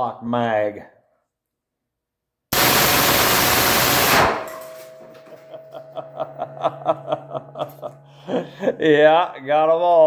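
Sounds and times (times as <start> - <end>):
submachine gun burst: 2.5 - 5.0
gunshot echo in room: 2.5 - 5.6.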